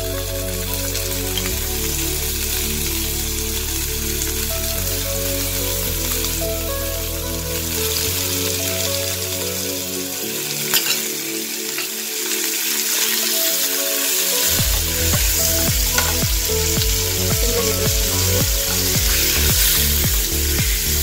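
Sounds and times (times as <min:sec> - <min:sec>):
soft background music: 0:00.0 - 0:21.0
chicken sizzling in hot oil: 0:07.6 - 0:21.0.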